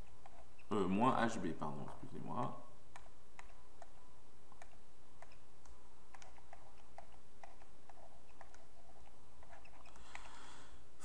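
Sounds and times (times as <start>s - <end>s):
stylus tapping on pen tablet: 2.4s - 5.4s, 6.1s - 8.7s.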